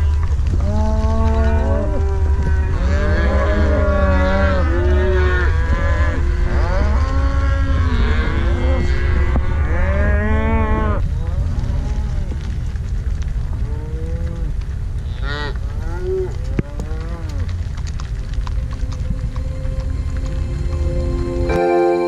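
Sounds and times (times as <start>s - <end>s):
cattle mooing and bawling: 0.0s - 12.4s, 13.7s - 17.6s
low rumble: 0.0s - 21.8s.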